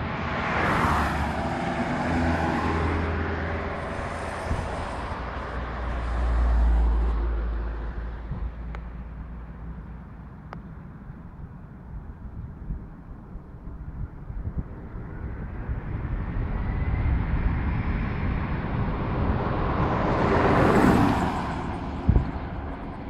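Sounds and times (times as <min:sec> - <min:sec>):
vehicle rushing past: 0:00.0 - 0:08.7, 0:14.9 - 0:23.0
van driving past: 0:00.0 - 0:09.7, 0:15.6 - 0:23.0.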